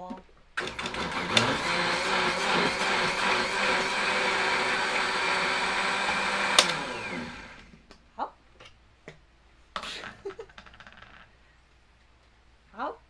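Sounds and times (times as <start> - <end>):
blender motor running: 0.6 - 7.7.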